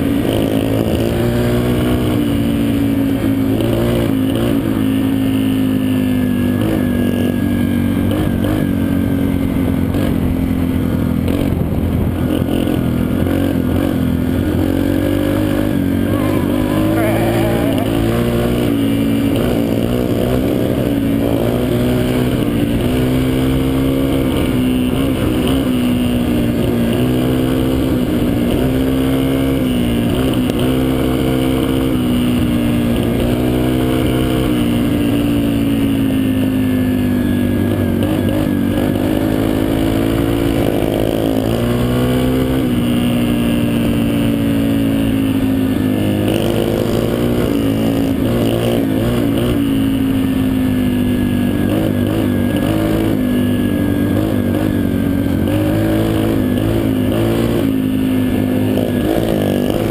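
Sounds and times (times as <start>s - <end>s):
dirt bike engine revving: 0.2s - 59.9s.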